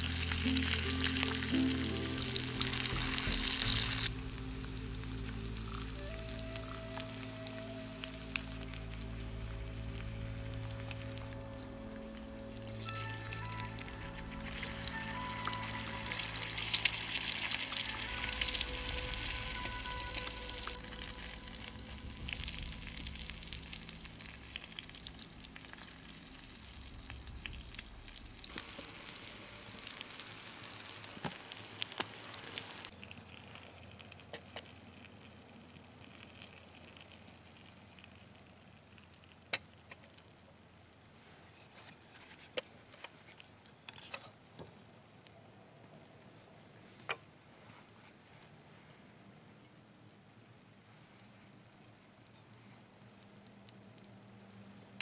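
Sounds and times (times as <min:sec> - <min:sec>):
egg sizzling in a pan: 0:00.0 - 0:41.2
campfire crackling: 0:00.0 - 0:55.0
fire popping: 0:00.0 - 0:55.0.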